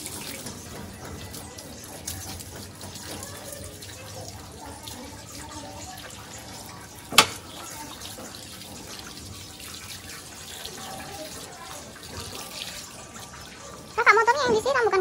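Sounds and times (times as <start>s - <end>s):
water from hose splashing: 0.0s - 14.9s
sharp knock: 7.2s - 7.4s.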